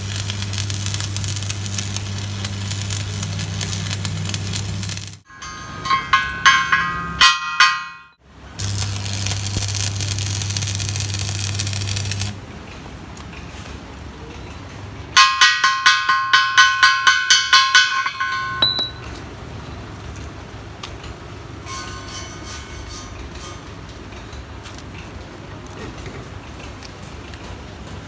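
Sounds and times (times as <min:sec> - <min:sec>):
arc welding crackle and hum: 0:00.0 - 0:05.3, 0:08.4 - 0:14.3
tool striking ringing metal: 0:05.3 - 0:08.2, 0:15.2 - 0:19.1
faint ringing taps: 0:15.2 - 0:19.1.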